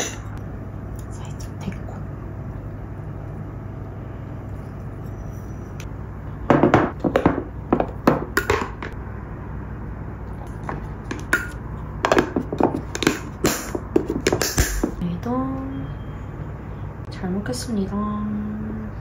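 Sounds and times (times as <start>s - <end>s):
steady low hum: 0.0s - 19.0s.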